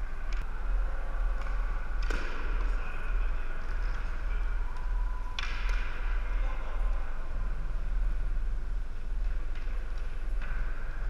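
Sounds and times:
steady low hum: 0.0 - 11.0
hockey sticks clacking ball: 0.2 - 6.6, 9.2 - 11.0.

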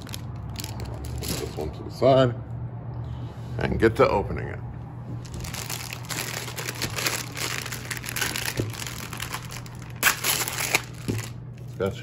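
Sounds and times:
plastic packaging crinkling: 0.0 - 1.6, 5.2 - 11.9.

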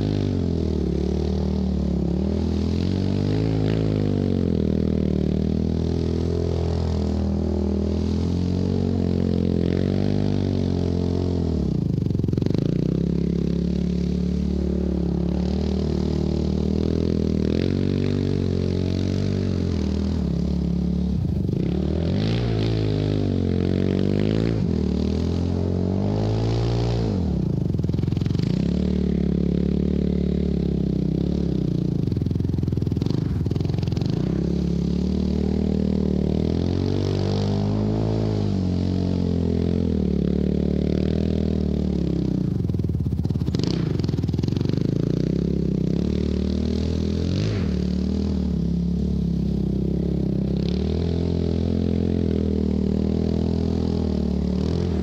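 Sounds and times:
quad engine revving: 0.0 - 55.0.

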